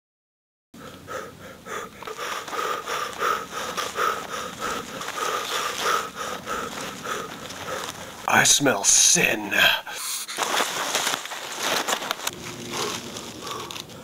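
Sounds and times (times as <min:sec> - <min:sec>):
heavy panting breaths: 0:00.8 - 0:08.3, 0:11.0 - 0:14.0.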